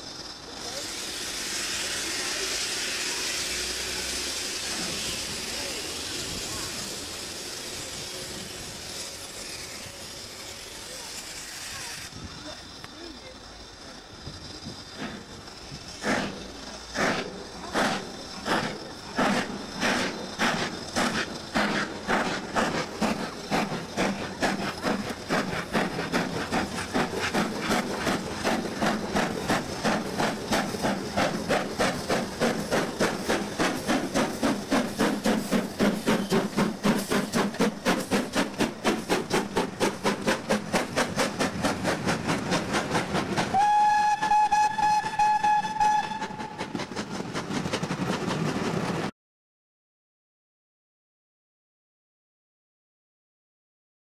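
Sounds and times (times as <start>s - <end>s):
steam locomotive exhaust beats: 0.0s - 49.1s
steam whistle blast: 43.5s - 46.6s.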